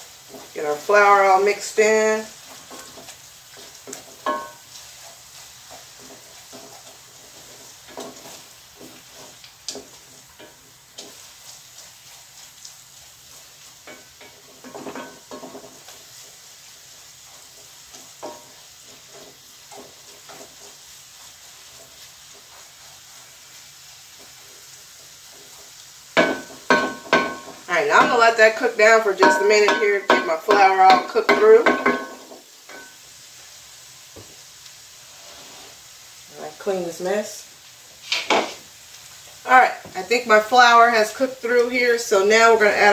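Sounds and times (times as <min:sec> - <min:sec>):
soft steady sizzle: 0:00.0 - 0:42.9
wooden spoon scraping a pot: 0:00.1 - 0:25.8, 0:38.0 - 0:38.7.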